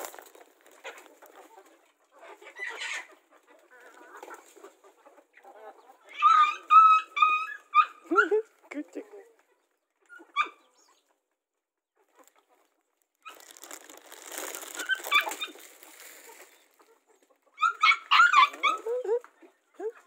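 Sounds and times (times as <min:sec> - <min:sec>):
puppy yelps: 0:06.1 - 0:08.4, 0:10.1 - 0:10.8, 0:14.7 - 0:15.7, 0:17.6 - 0:19.2
puppy yipping: 0:06.1 - 0:08.4, 0:10.0 - 0:10.9, 0:14.8 - 0:15.7, 0:17.6 - 0:19.2
animals scuffling: 0:13.3 - 0:17.3.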